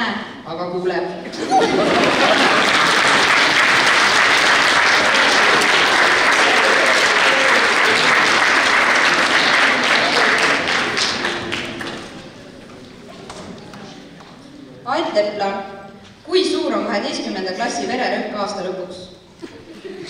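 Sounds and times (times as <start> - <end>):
audience applauding: 1.5 - 12.3.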